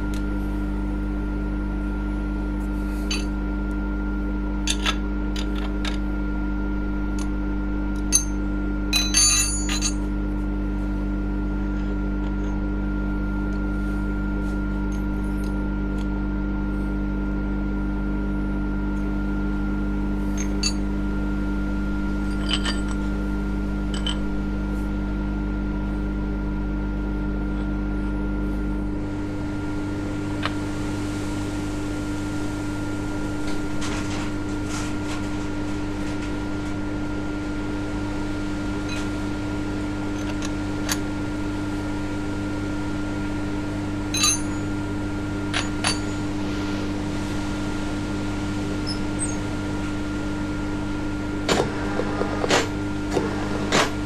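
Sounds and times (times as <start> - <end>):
steady mechanical hum: 0.0 - 54.0
metallic clinks of tools: 9.0 - 10.0, 44.2 - 44.6.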